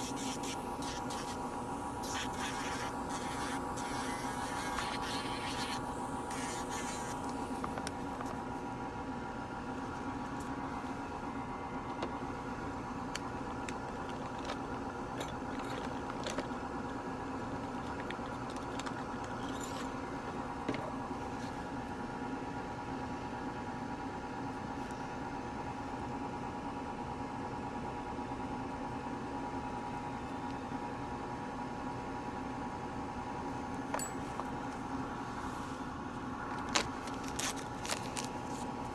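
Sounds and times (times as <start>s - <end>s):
nail drill humming and whining: 0.0s - 7.8s.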